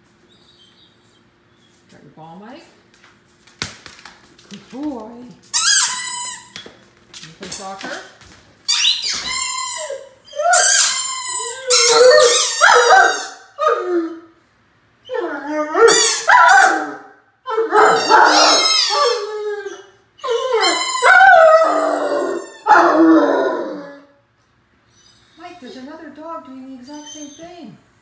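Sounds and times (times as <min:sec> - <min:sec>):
dog howling: 0:09.8 - 0:14.3, 0:15.1 - 0:24.2.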